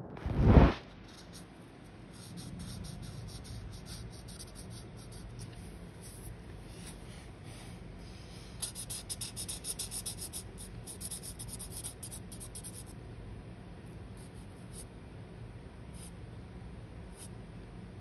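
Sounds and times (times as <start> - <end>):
marker scratching on paper: 1.0 - 1.5, 2.1 - 7.0, 8.6 - 13.0.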